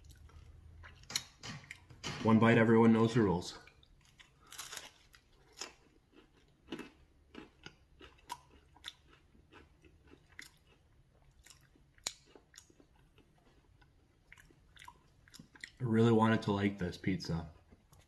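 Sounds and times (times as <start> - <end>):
person chewing pizza: 0.0 - 1.9, 3.6 - 15.8, 17.3 - 18.0.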